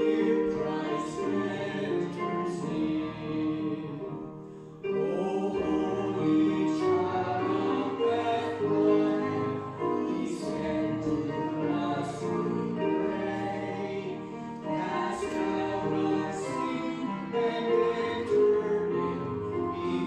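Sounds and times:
voices singing a carol: 0.0 - 20.0.

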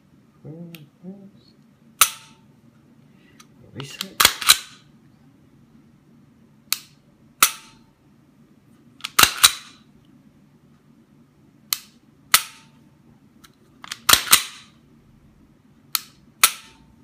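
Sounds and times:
pistol slide clacking: 4.1 - 4.8, 9.0 - 9.7, 13.8 - 14.7.

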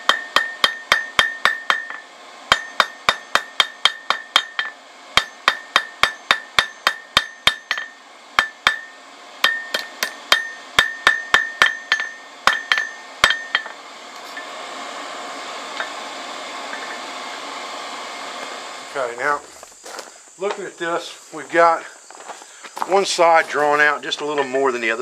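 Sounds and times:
hammer ringing on anvil: 0.0 - 13.8.

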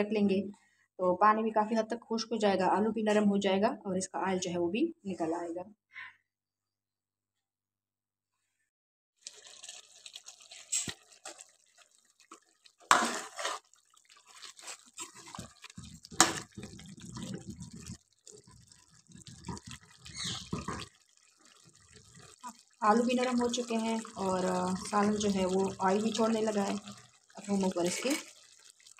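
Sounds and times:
curry bubbling in a pot: 9.2 - 28.9.

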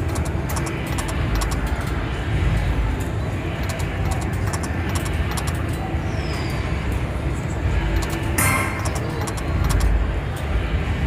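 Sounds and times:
slot machine reels clicking: 0.0 - 1.9, 3.6 - 5.7, 8.0 - 10.0
casino background rumble: 0.0 - 6.0, 7.6 - 10.2.

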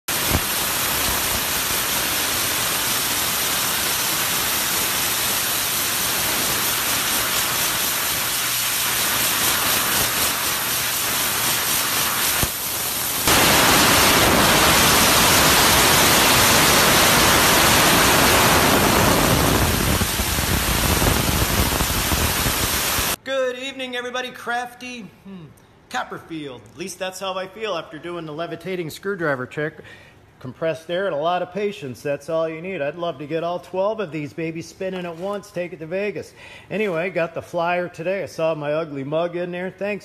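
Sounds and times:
compressed air hissing from blow gun: 0.1 - 13.4, 14.1 - 23.2.

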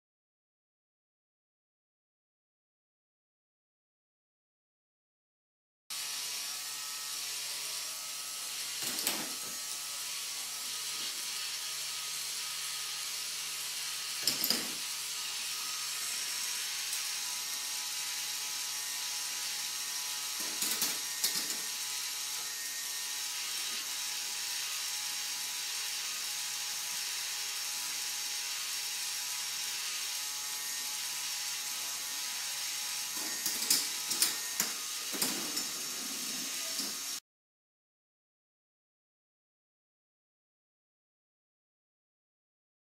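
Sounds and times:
motorised whir of plastic gears: 8.0 - 37.2.

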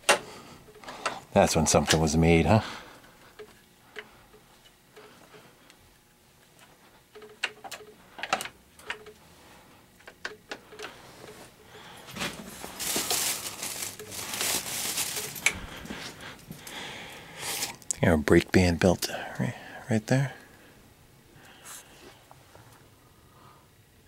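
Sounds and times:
scraping and rustling: 10.9 - 16.2.

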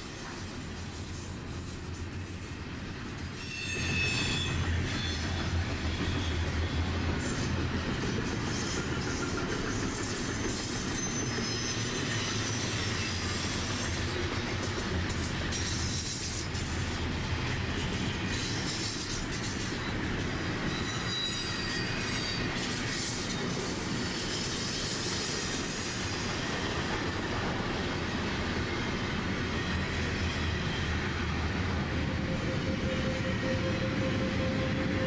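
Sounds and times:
train rumbling on rails: 0.0 - 35.0
wheel squeals: 3.4 - 7.4, 8.4 - 13.6, 18.3 - 26.4.

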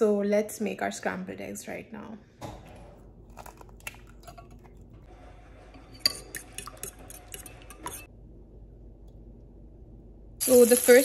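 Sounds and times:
metal utensils clinking: 5.7 - 8.1.

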